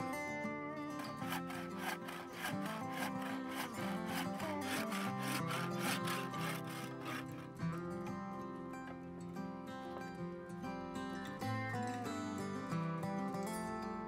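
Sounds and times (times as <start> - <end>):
hand saw cutting wood: 0.8 - 7.8.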